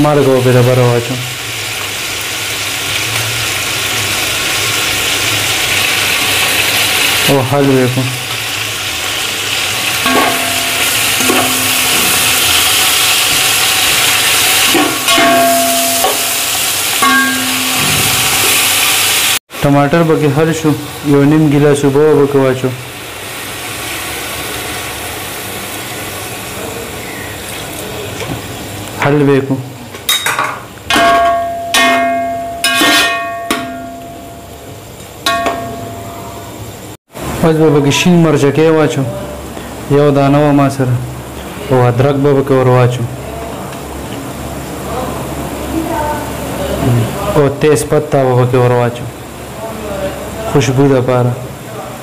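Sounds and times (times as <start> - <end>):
food sizzling in hot oil: 0.0 - 39.1
metal pot ringing: 10.0 - 13.0, 14.7 - 18.9, 30.1 - 36.5
spoon scraping and knocking pot: 30.1 - 33.8.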